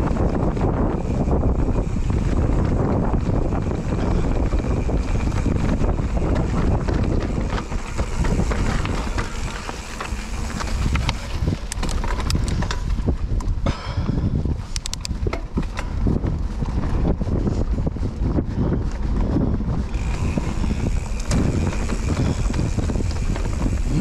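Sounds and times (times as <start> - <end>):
bike clicks and rattles: 0.0 - 24.0
bike tyres rolling over stones: 0.0 - 24.0
wind on microphone: 0.0 - 24.0.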